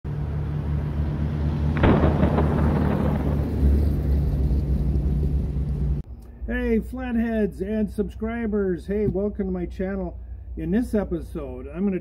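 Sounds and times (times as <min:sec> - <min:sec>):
car engine rumbling: 0:00.1 - 0:06.1.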